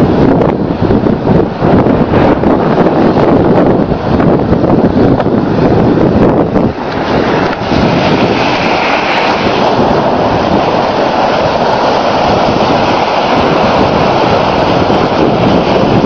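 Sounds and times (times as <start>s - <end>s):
wind buffeting microphone: 0.0s - 16.0s
waves breaking against sea wall: 3.9s - 16.0s.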